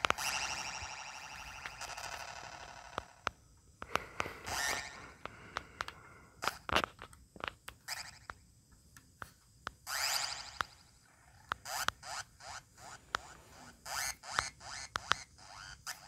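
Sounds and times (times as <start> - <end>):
sharp clicks: 0.0 - 10.8, 11.4 - 12.3.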